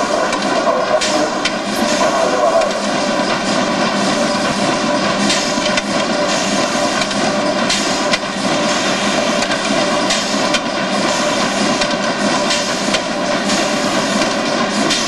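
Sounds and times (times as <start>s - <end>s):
box-making machine running: 0.0s - 15.0s
steady machine tones: 0.0s - 15.0s.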